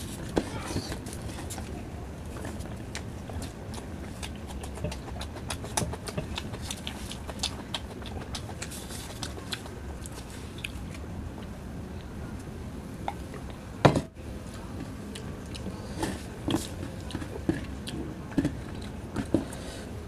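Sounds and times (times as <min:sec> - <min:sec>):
wet chewing clicks and smacks: 0:02.4 - 0:11.5, 0:14.8 - 0:19.5.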